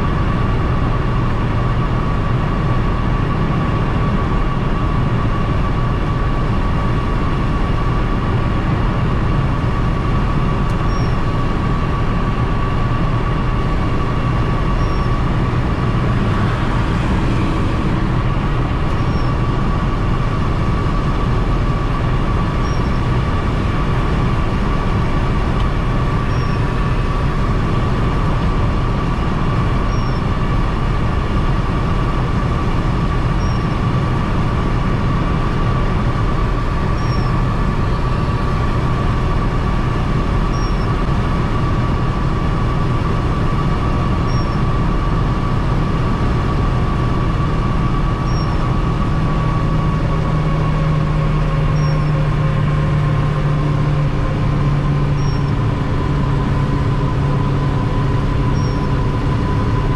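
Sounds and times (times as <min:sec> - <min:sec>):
car engine drone: 0:00.0 - 0:59.9
steady high whine: 0:00.0 - 0:59.9
faint short chirp: 0:10.9 - 0:11.2, 0:14.8 - 0:15.1, 0:26.3 - 0:26.6, 0:29.9 - 0:30.2, 0:37.0 - 0:37.3, 0:40.5 - 0:40.9, 0:44.3 - 0:44.6, 0:48.3 - 0:48.6, 0:51.8 - 0:52.1, 0:55.2 - 0:55.5, 0:58.6 - 0:58.9.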